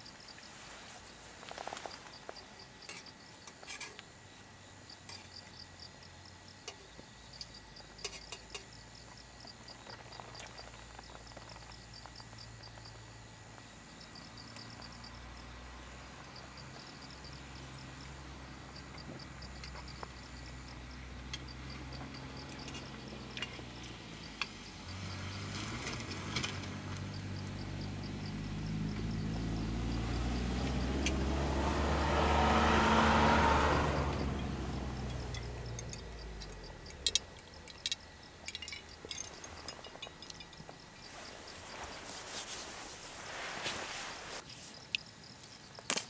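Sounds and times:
vehicle engine passing: 0:14.8 - 0:37.2.

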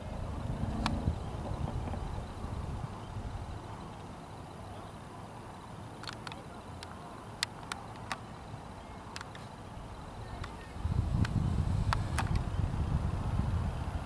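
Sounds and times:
low rumble on microphone: 0:00.0 - 0:04.0, 0:09.7 - 0:14.0
sharp clicks: 0:06.0 - 0:08.3, 0:09.1 - 0:09.5, 0:11.2 - 0:12.5.

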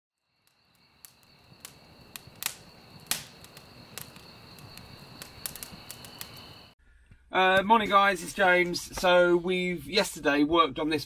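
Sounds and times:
sharp ticks and clicks: 0:00.5 - 0:06.6.

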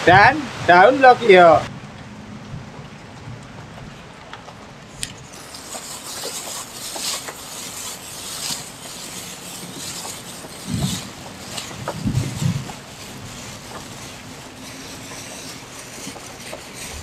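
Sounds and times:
crumbly scrunching: 0:04.4 - 0:17.0
plastic gloves rustling: 0:05.2 - 0:17.0.

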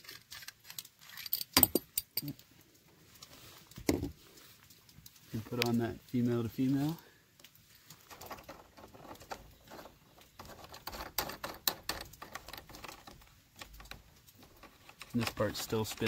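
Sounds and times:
hose adapter clicks and scrapes: 0:07.9 - 0:16.0.

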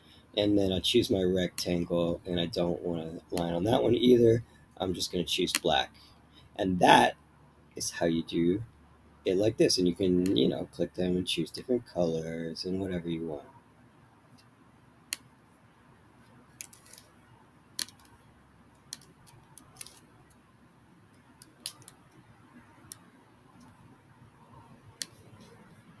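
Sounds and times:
faint room hiss: 0:00.0 - 0:26.0
computer mouse clicks: 0:21.4 - 0:22.2, 0:25.0 - 0:25.4.

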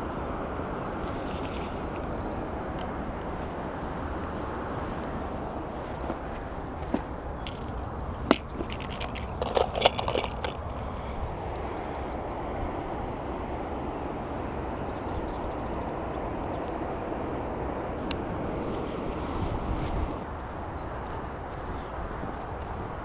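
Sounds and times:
wind rumble on microphone: 0:00.0 - 0:23.0
clicks of fishing tackle: 0:07.4 - 0:10.6.

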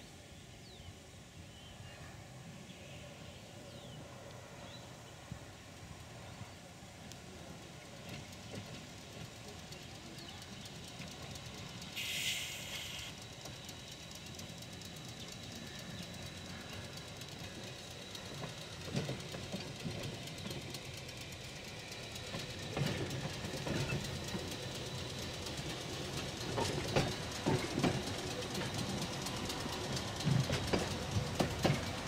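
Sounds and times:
brief hiss: 0:11.9 - 0:13.2
streetcar wheels knocking on rail joints: 0:22.2 - 0:32.0.

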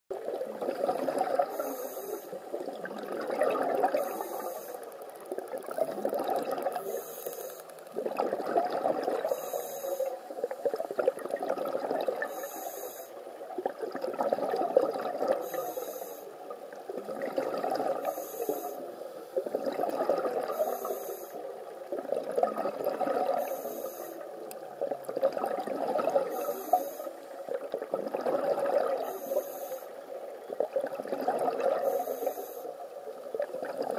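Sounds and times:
exhaled bubbles gurgling: 0:00.1 - 0:33.9
regulator inhalation hiss: 0:01.5 - 0:02.4, 0:04.0 - 0:04.9, 0:06.8 - 0:07.8, 0:09.2 - 0:10.4, 0:12.3 - 0:13.2, 0:15.4 - 0:16.4, 0:18.0 - 0:18.9, 0:20.5 - 0:21.5, 0:23.4 - 0:24.2, 0:26.3 - 0:27.3, 0:29.0 - 0:30.0, 0:31.8 - 0:32.8.

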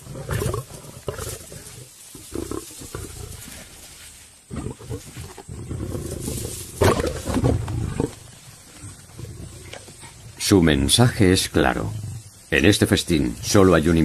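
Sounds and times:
lions growling: 0:00.0 - 0:03.8, 0:04.5 - 0:13.6.

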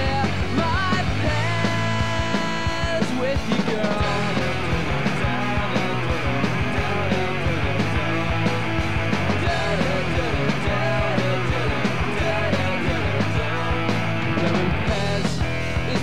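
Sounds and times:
instrumental rock music: 0:00.0 - 0:16.0.

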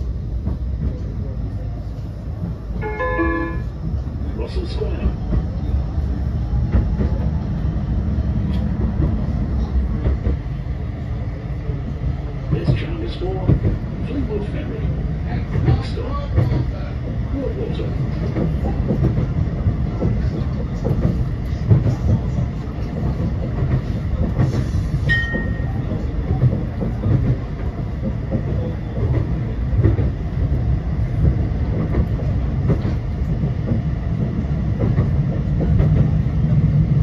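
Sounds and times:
tram rumbling: 0:00.0 - 0:37.0
high-pitched tone: 0:02.8 - 0:03.7.

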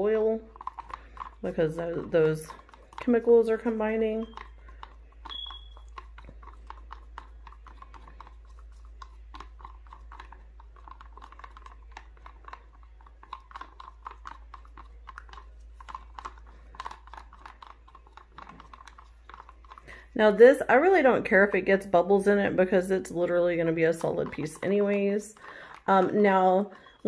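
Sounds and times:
stir stick clicking in plastic cup: 0:00.0 - 0:27.0.

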